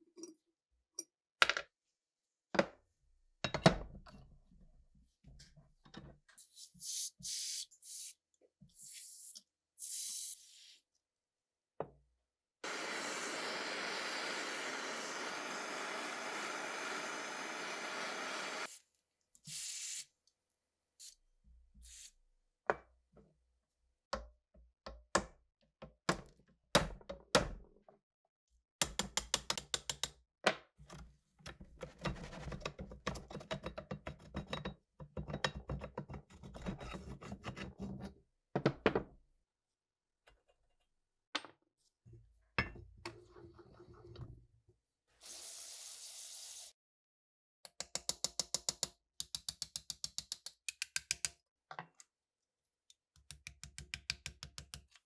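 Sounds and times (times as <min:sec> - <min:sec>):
aerosol can spraying: 0:45.2 - 0:46.7.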